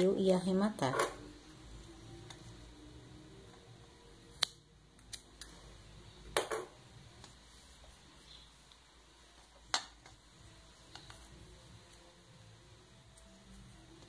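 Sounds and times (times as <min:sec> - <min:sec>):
scissors snipping yarn: 0:04.3 - 0:05.6.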